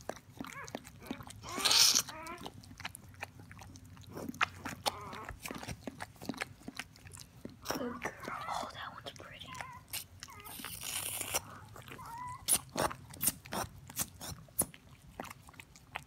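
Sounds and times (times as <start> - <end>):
puppy squeaking: 0.4 - 2.6, 4.6 - 6.0, 9.5 - 14.4.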